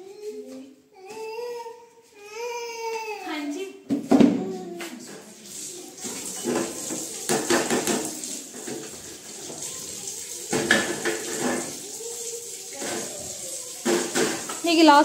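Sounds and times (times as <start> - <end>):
tap running into metal sink: 5.7 - 12.0, 12.7 - 14.7
tray and cups clattering: 6.2 - 9.0, 10.5 - 11.8, 13.8 - 14.6.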